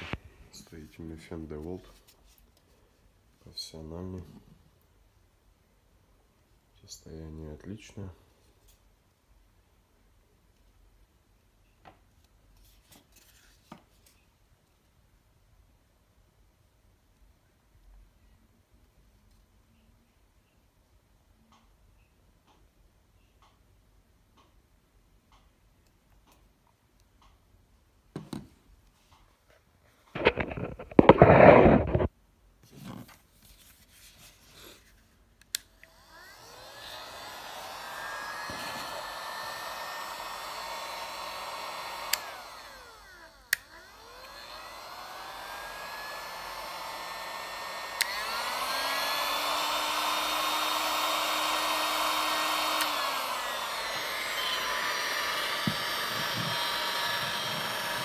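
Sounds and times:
heat gun blower rushing: 0:00.0 - 0:00.2, 0:35.8 - 0:58.0.

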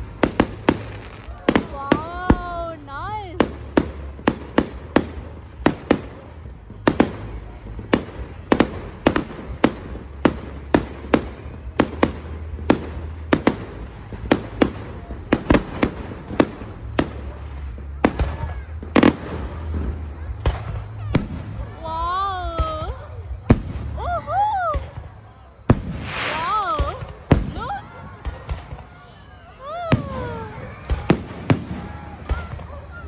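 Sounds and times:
firework shells bursting: 0:25.7 - 0:27.6.

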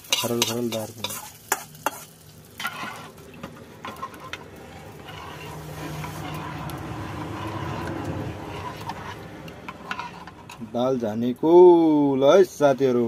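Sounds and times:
vehicle engine humming: 0:02.3 - 0:11.0.

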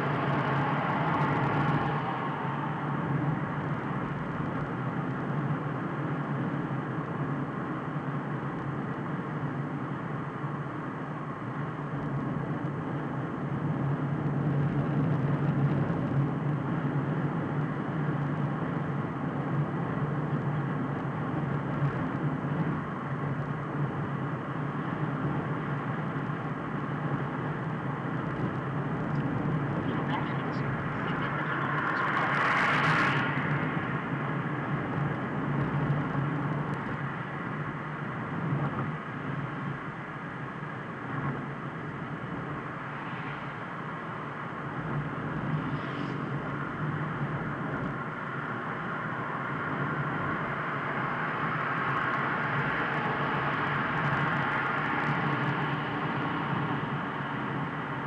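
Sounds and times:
car road and engine noise: 0:00.0 - 0:58.0.

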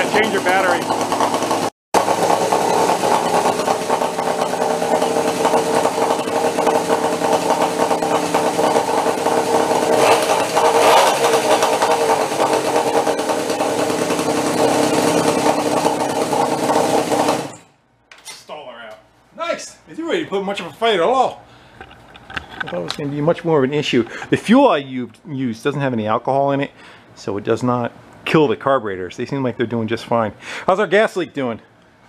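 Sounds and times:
small gas engine running: 0:00.0 - 0:17.7.

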